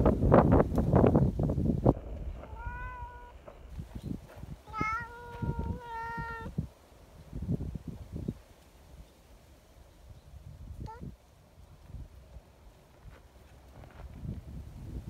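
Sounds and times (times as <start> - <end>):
cat meowing: 2.5 - 3.4, 4.7 - 6.5.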